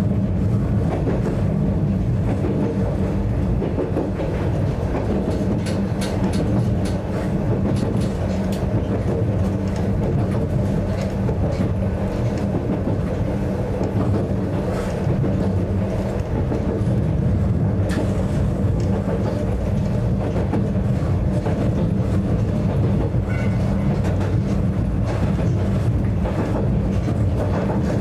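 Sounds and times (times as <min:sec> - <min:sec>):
train rumble and hum: 0:00.0 - 0:28.0
faint rail clicks: 0:02.2 - 0:17.0, 0:17.8 - 0:28.0.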